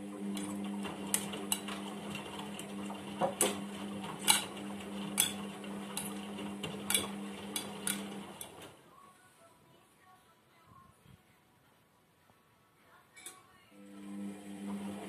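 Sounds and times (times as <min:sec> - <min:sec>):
washing machine motor hum: 0:00.0 - 0:08.9, 0:13.7 - 0:15.0.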